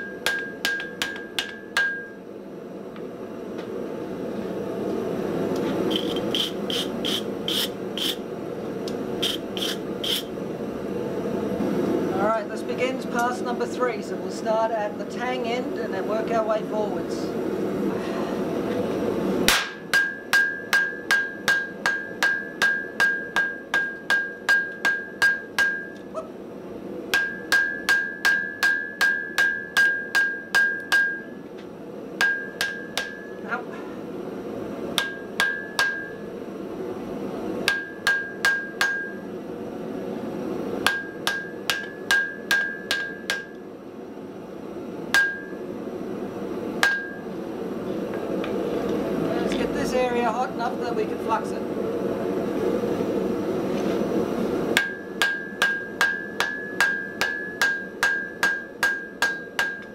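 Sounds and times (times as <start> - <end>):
hammer blows ringing on anvil: 0.0 - 2.2, 19.5 - 26.0, 27.1 - 31.3, 32.2 - 33.4, 35.0 - 36.2, 37.6 - 39.2, 40.8 - 43.5, 45.1 - 45.6, 46.8 - 47.2, 54.8 - 59.9.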